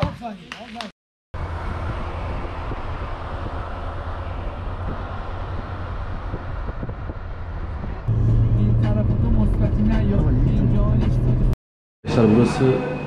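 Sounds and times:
deep rumble: 1.4 - 11.6
car road and wind noise: 1.4 - 13.0.

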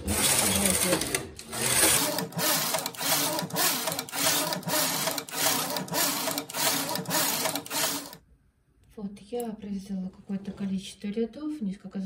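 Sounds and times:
knitting machine carriage rattling: 0.0 - 8.2.

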